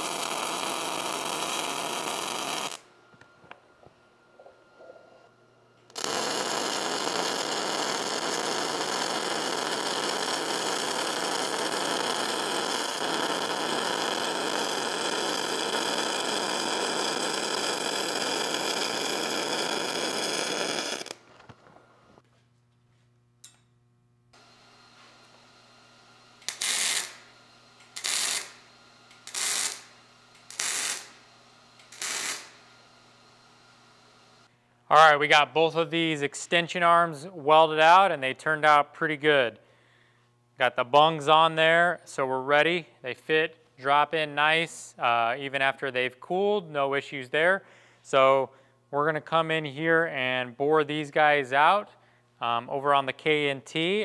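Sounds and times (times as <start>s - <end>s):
short welder bursts: 0.0s - 2.9s, 5.9s - 21.3s, 24.4s - 33.9s
welder running: 0.0s - 3.9s, 5.8s - 22.2s, 23.1s - 34.6s.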